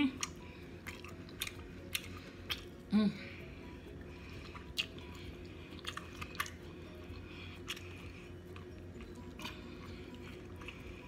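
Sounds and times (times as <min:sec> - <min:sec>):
mouth chewing food: 0:00.0 - 0:02.9, 0:03.6 - 0:11.0
low hum: 0:00.0 - 0:11.0
wet mouth clicks and smacks: 0:00.2 - 0:02.8.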